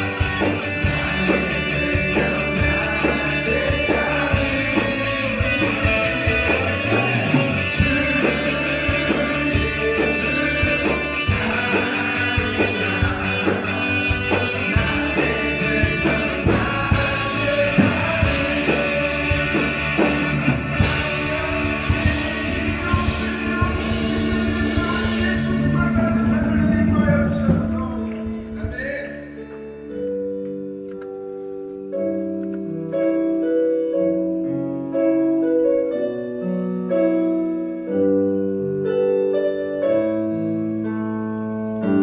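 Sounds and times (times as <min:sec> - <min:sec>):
person singing: 0:00.0 - 0:29.6
electric guitar: 0:00.0 - 0:42.0.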